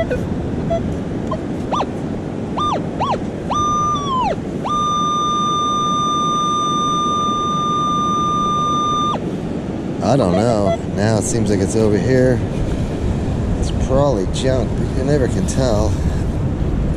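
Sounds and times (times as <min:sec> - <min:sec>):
metal detector beeps and tones: 0:00.0 - 0:01.9, 0:02.6 - 0:09.2, 0:10.0 - 0:10.9.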